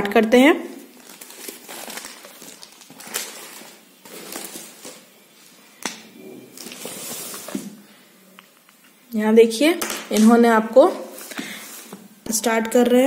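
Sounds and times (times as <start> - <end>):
rustling handling noise: 0.9 - 5.7, 6.4 - 7.9.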